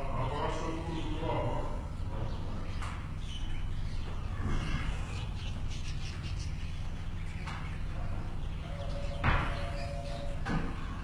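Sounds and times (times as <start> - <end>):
budgerigars chirping: 2.3 - 11.0.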